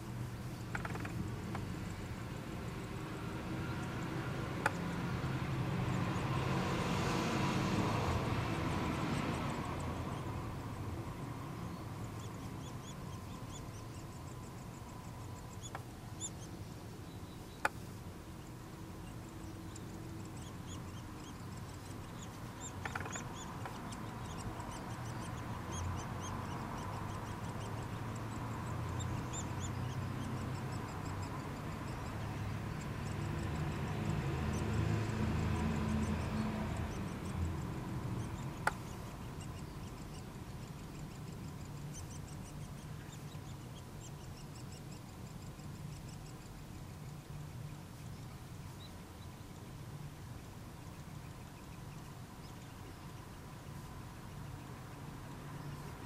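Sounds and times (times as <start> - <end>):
nestlings begging with raspy calls: 0.5 - 56.0
sharp clicks: 0.7 - 1.7, 38.4 - 39.0.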